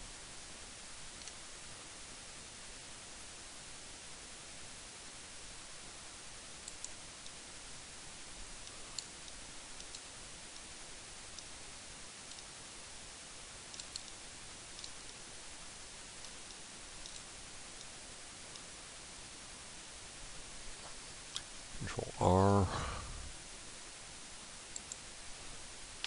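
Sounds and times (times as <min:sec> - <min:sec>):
microphone hiss: 0:00.0 - 0:26.0
mouse and keyboard clicks: 0:08.6 - 0:10.1, 0:13.7 - 0:14.2, 0:14.8 - 0:15.1, 0:16.2 - 0:17.9, 0:24.7 - 0:25.0.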